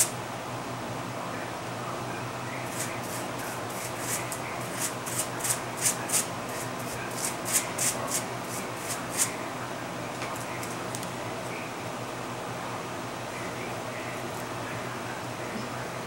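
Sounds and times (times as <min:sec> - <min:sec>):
brush swishing through hair: 0:02.7 - 0:09.3.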